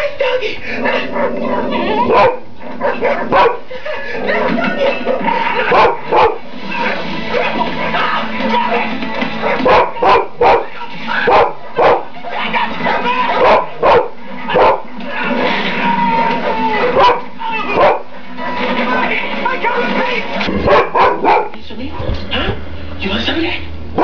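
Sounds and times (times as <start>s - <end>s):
dog barking: 2.1s - 3.6s, 5.1s - 6.4s, 9.4s - 12.1s, 12.9s - 14.9s, 17.0s - 18.1s, 20.6s - 22.1s.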